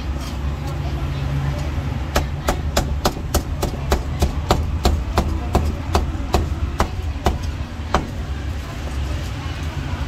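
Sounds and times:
cleaver chopping on wooden block: 0:02.1 - 0:08.2.

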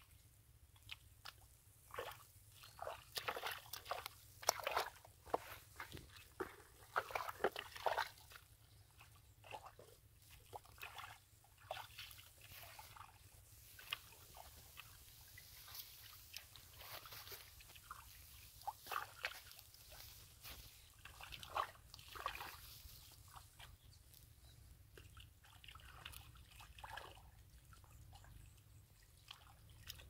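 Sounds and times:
squelching in wet mud: 0:00.0 - 0:30.0
short wet clicks and crackles: 0:00.7 - 0:24.3.

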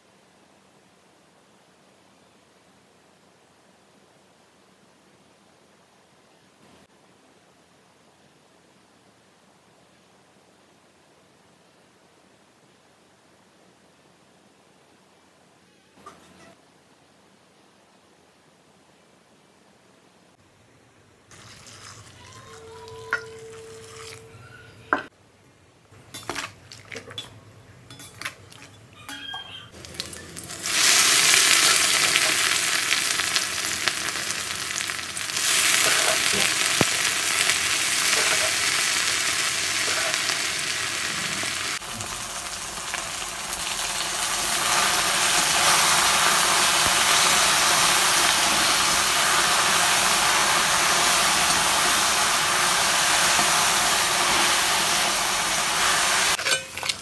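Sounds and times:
vegetables sizzling in a wok: 0:29.8 - 0:57.0.

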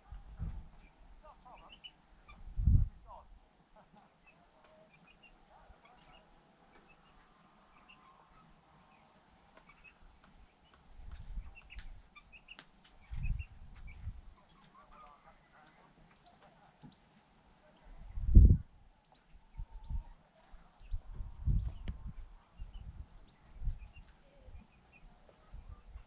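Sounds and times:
chicks peeping: 0:00.0 - 0:02.5, 0:03.8 - 0:17.2, 0:19.0 - 0:26.0
hen calls: 0:01.2 - 0:02.4.

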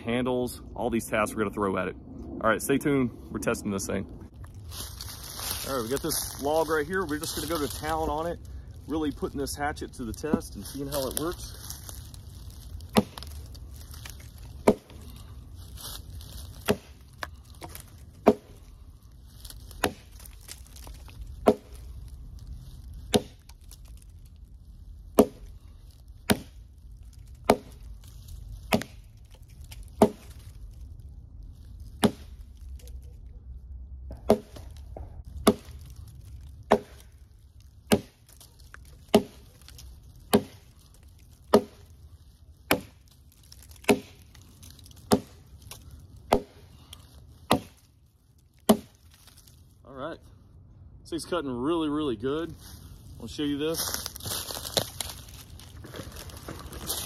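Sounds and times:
hatchet chopping log: 0:12.9 - 0:13.4, 0:14.6 - 0:15.0, 0:16.6 - 0:18.6, 0:19.8 - 0:21.8, 0:23.1 - 0:23.6, 0:25.2 - 0:25.6, 0:26.2 - 0:26.6, 0:27.3 - 0:27.9, 0:28.7 - 0:29.1, 0:30.0 - 0:30.4, 0:32.0 - 0:32.4, 0:34.1 - 0:35.9, 0:36.7 - 0:37.1, 0:37.9 - 0:40.8, 0:41.5 - 0:41.9, 0:42.7 - 0:44.4, 0:45.0 - 0:46.7, 0:47.5 - 0:47.9, 0:48.6 - 0:49.0.

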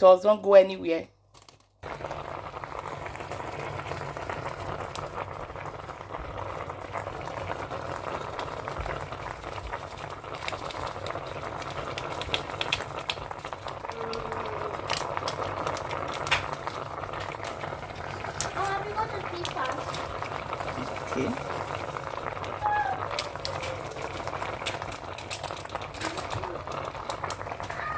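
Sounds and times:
liquid simmering in a pan: 0:01.8 - 0:27.9
seasoning shaken from packet: 0:22.6 - 0:27.8.

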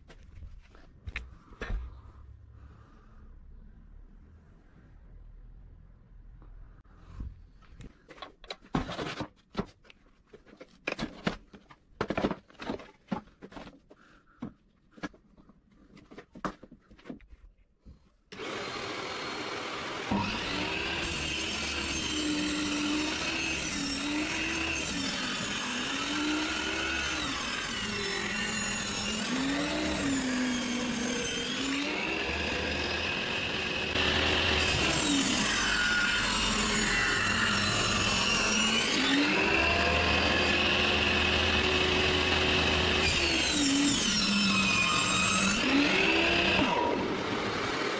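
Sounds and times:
tools and wood clattering: 0:07.7 - 0:17.5
table saw cutting wood: 0:18.3 - 0:47.9.

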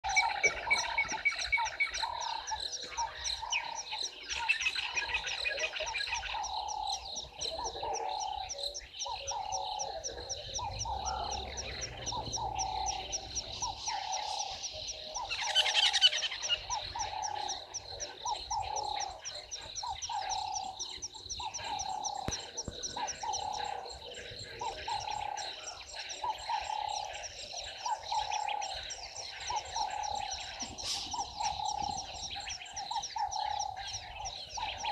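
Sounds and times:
frog croaking: 0:00.0 - 0:34.9
high chirping frog chorus: 0:00.0 - 0:34.9.

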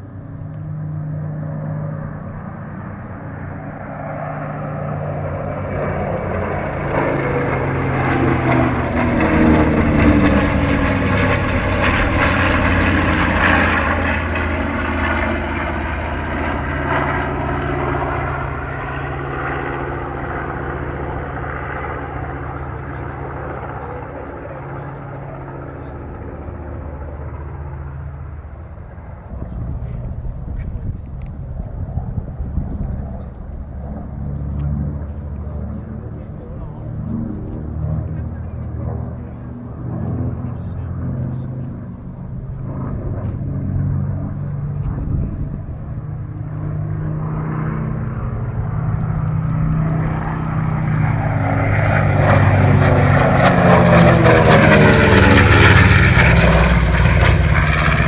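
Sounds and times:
propeller planes flying over: 0:00.0 - 0:58.0.

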